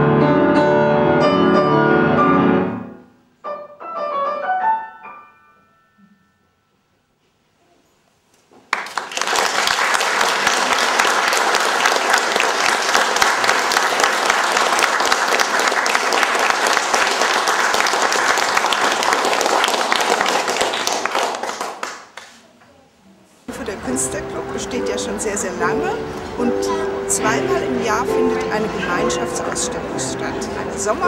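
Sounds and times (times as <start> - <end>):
small audience applauding: 8.6 - 22.5.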